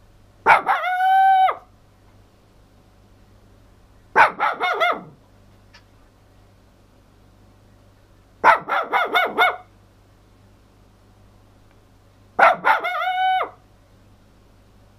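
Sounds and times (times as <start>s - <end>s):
small dog barking: 0.4s - 1.7s, 4.1s - 5.2s, 8.4s - 9.7s, 12.4s - 13.6s
dog howling: 0.5s - 1.7s, 12.4s - 13.6s.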